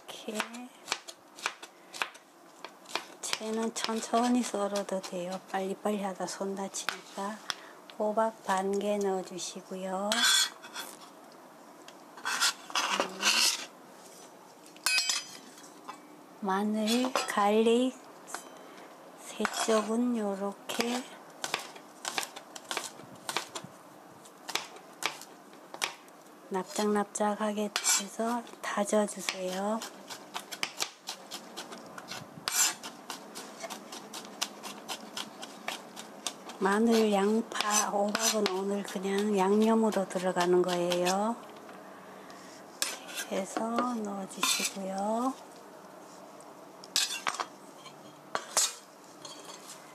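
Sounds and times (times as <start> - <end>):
knife scraping on cutting board: 10.1 - 11.1, 12.2 - 13.7, 27.8 - 28.1, 29.8 - 38.6, 42.8 - 43.4, 44.4 - 44.8, 47.0 - 49.8.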